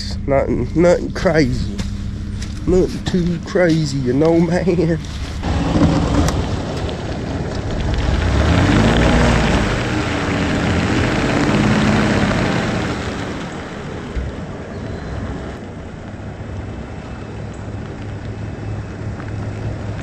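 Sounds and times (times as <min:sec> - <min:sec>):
truck engine revving: 0:00.0 - 0:15.6
tyres in mud: 0:00.4 - 0:20.0.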